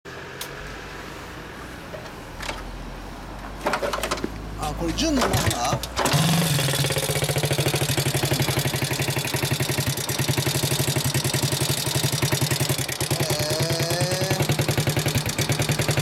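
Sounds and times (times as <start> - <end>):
motorcycle engine idling: 5.4 - 16.0.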